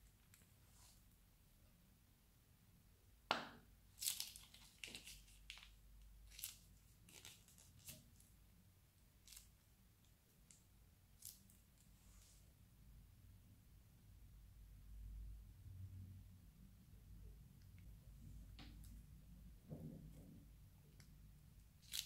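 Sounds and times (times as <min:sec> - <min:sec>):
plastic piping bag crinkling: 0:03.9 - 0:08.2, 0:21.8 - 0:22.0.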